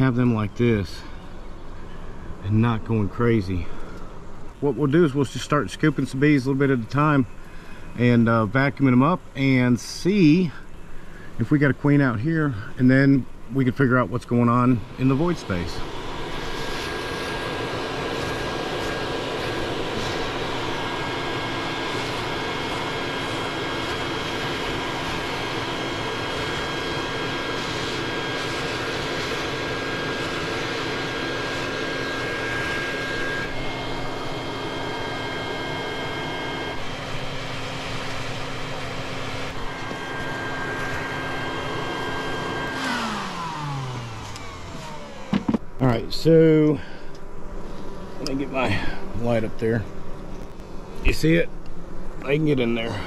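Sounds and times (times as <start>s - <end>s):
shop vacuum whining: 0.0s - 53.0s
vacuum motor winding down: 14.2s - 47.2s, 48.1s - 49.8s.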